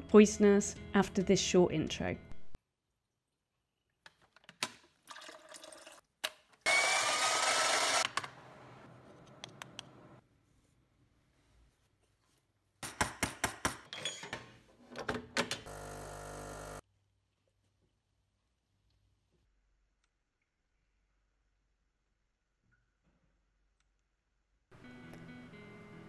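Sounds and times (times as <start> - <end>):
espresso machine rushing: 6.7 - 8.1, 15.7 - 16.8.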